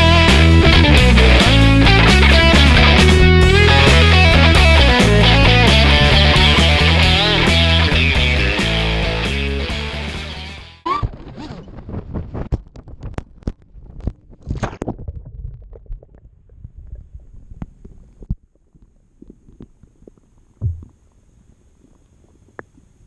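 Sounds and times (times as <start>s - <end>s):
background music: 0.0s - 10.8s
dull low thump: 20.6s - 21.0s.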